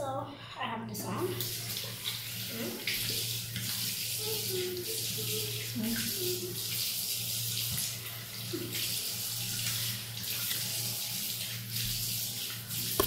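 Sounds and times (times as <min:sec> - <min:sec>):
tap water running into sink: 0:01.2 - 0:13.0.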